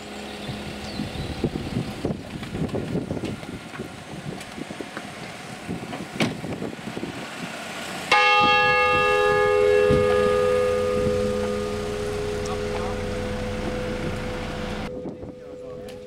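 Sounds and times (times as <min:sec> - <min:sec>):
church bell ringing: 0:08.1 - 0:16.0.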